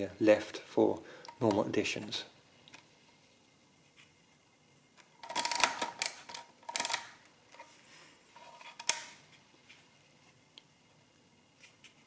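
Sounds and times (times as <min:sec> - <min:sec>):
mechanical calculator clattering: 0:05.2 - 0:07.1.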